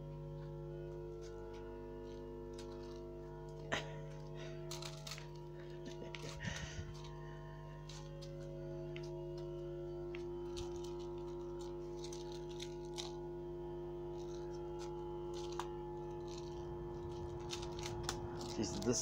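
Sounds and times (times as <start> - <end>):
steady low hum: 0.0 - 19.0
kitten claws scuffling on floor: 10.2 - 13.2, 14.1 - 19.0.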